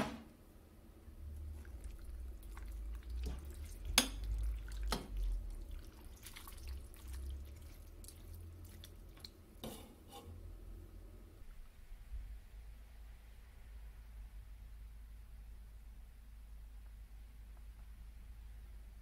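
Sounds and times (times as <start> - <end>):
liquid splashing and dripping: 1.4 - 9.4.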